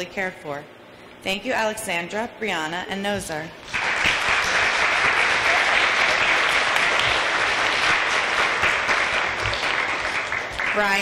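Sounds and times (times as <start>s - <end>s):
children applauding: 3.7s - 11.0s.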